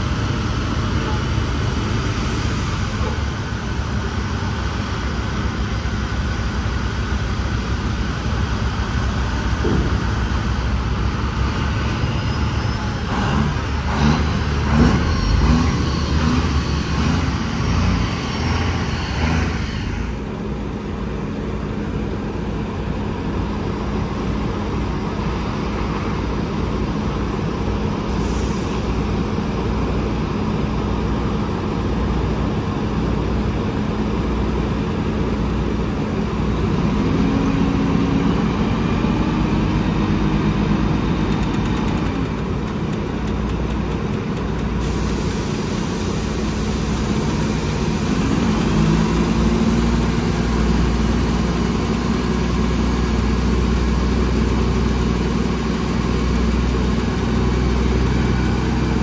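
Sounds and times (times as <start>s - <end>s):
diesel truck engine running: 0.0s - 59.0s.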